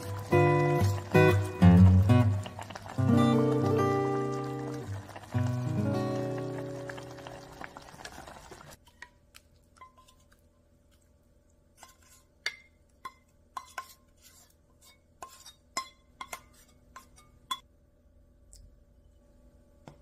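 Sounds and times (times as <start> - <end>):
porridge scraped into bowl: 13.6 - 15.6.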